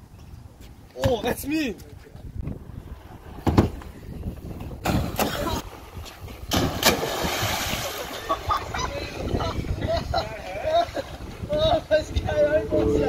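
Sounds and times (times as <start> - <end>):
loud splash into water: 6.5 - 8.3
rush of spray: 6.8 - 8.3.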